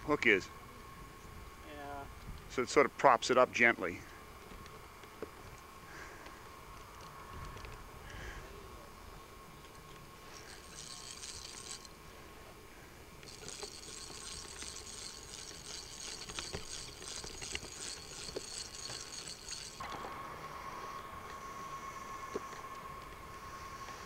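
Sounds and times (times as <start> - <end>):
geared hand winder whirring: 10.4 - 12.0, 13.2 - 19.8.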